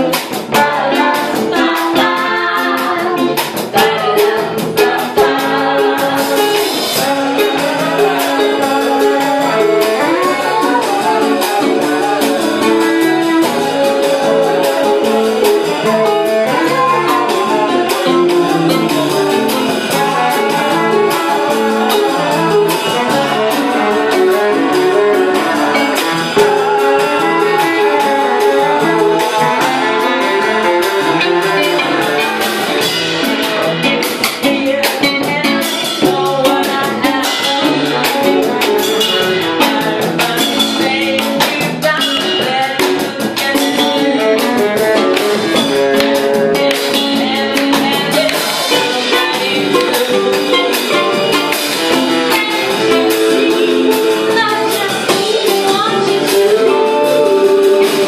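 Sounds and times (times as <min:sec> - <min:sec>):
bass guitar: 0:00.0 - 0:58.0
drum kit: 0:00.0 - 0:58.0
electric guitar: 0:00.0 - 0:58.0.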